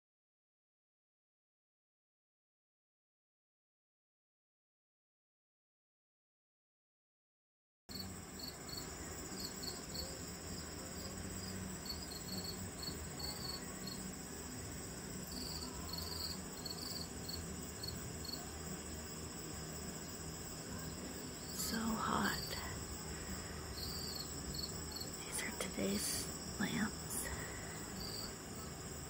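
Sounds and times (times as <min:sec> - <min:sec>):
continuous insect buzz: 0:07.9 - 0:29.0
insect chirps: 0:07.9 - 0:29.0.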